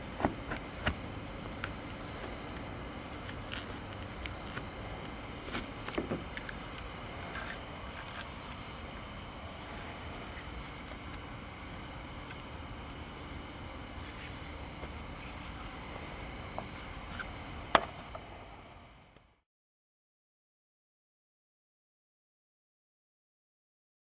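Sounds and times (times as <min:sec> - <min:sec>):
crickets trilling: 0:00.0 - 0:19.4
razor scraper scraping glass: 0:00.2 - 0:09.0.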